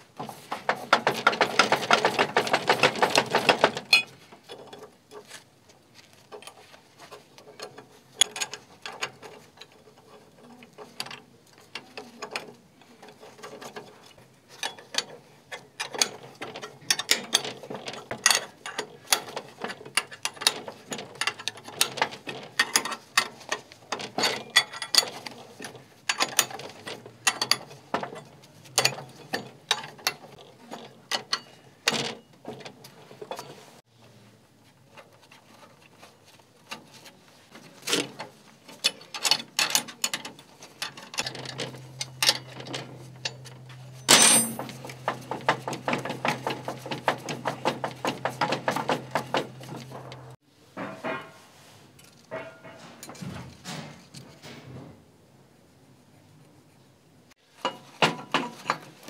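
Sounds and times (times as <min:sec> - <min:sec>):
metal clinks and knocks of a vise: 0:00.2 - 0:04.9, 0:14.5 - 0:33.7, 0:38.0 - 0:51.4, 0:52.0 - 0:54.5, 0:57.6 - 0:59.0
metal clang: 0:44.0 - 0:45.0, 0:49.9 - 0:51.5, 0:52.3 - 0:54.6.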